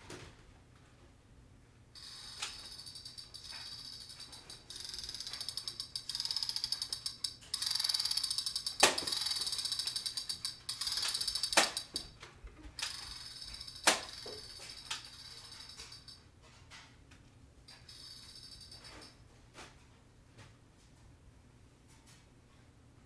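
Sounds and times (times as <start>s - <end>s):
toy blaster ratchet clicking: 2.0s - 12.1s, 12.8s - 16.2s.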